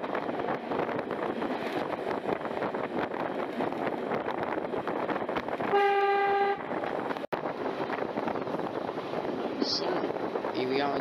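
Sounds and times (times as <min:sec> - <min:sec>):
diesel railcar rattling: 0:00.0 - 0:11.0
train horn blast: 0:05.7 - 0:06.7.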